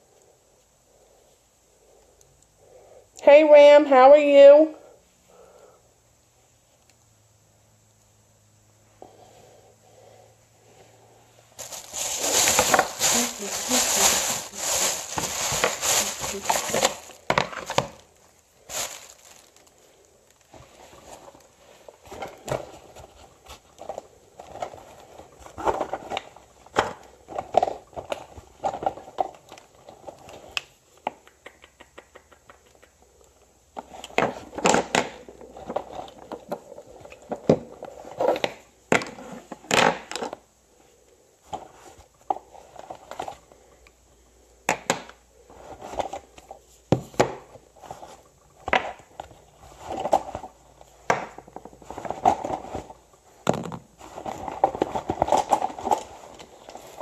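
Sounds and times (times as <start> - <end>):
packaging rustling and crinkling: 11.6 - 30.6, 45.6 - 57.0.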